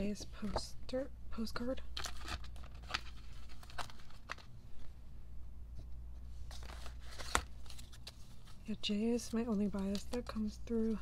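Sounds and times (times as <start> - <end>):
steady low hum: 0.0 - 11.0
paper cards rustling: 2.0 - 4.9, 6.3 - 11.0.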